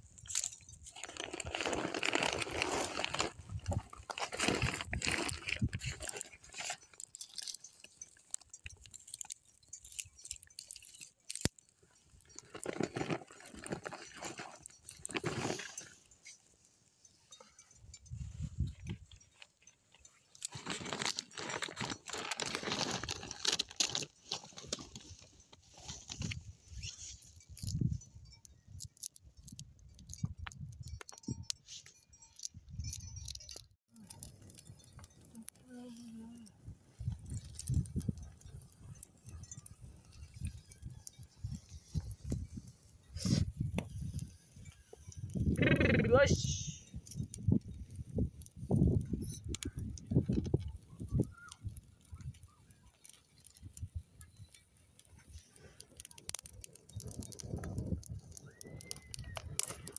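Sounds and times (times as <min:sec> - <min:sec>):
wind rumbling on microphone: 0:00.0 - 0:06.7, 0:17.7 - 0:19.2, 0:25.9 - 0:31.7, 0:34.1 - 0:52.8, 0:55.2 - 0:59.9
twigs fire crackling: 0:00.0 - 0:59.9
livestock bells clinking: 0:05.9 - 0:12.8, 0:14.0 - 0:20.6, 0:27.0 - 0:36.2, 0:37.0 - 0:47.8.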